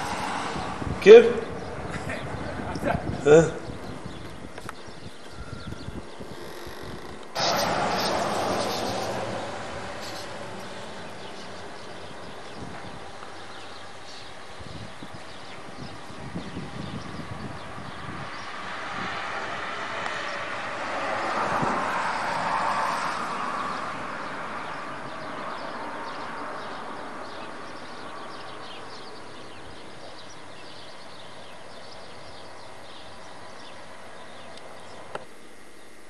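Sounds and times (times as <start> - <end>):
vehicle passing by: 0.0 - 2.7, 7.4 - 14.2, 16.3 - 29.5.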